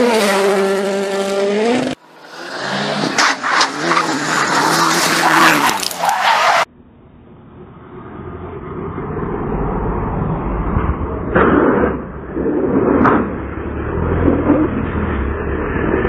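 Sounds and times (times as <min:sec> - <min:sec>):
rally car engine revving: 0:00.0 - 0:06.7, 0:08.3 - 0:16.0
rally car at full throttle: 0:00.0 - 0:16.0
low rumble: 0:06.7 - 0:16.0.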